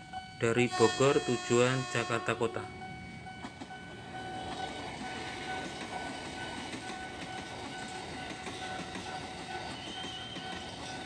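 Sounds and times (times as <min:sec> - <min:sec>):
train wheels clattering over rail joints: 0:04.4 - 0:11.0.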